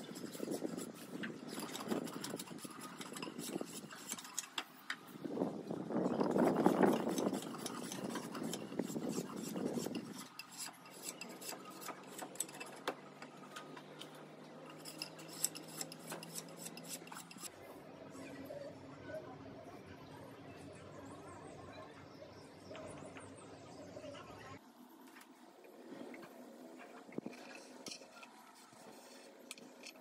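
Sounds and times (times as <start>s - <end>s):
hand tool scraping wood: 0.0s - 4.6s, 6.1s - 13.4s, 14.7s - 17.5s.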